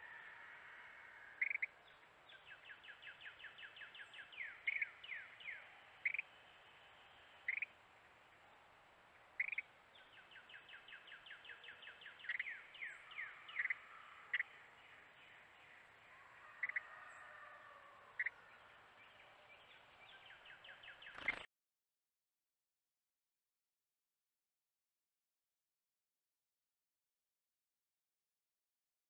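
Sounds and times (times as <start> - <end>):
bird sharp chips: 21.0 - 21.5.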